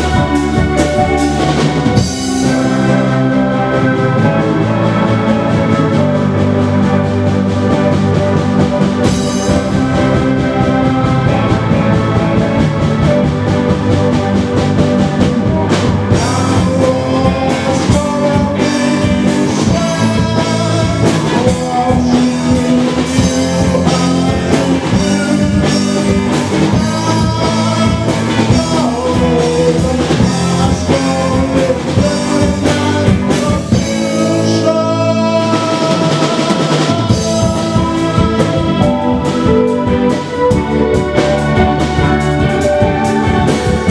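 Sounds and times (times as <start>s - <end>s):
live rock band playing: 0.0s - 43.9s
man singing into microphone: 15.4s - 39.6s.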